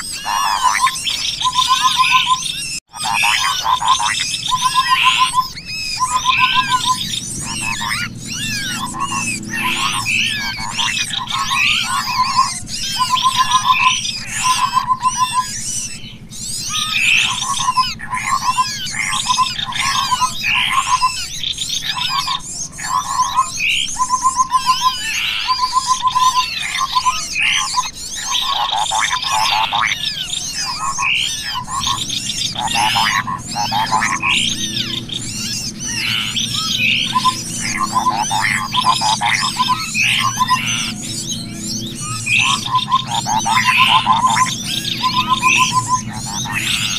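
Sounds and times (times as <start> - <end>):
birds chirping and whistling: 0.0 - 46.9
steady low hum: 25.9 - 46.9.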